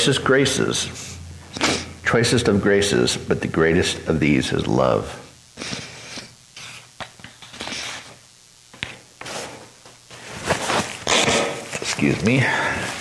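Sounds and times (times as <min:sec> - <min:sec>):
paper tissue rustling: 0:09.2 - 0:13.0.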